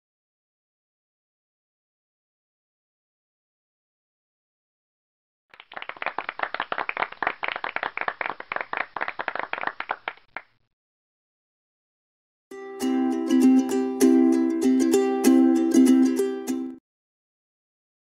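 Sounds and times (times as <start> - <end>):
canned applause: 5.6 - 10.5
plucked ukulele tune: 12.5 - 16.8.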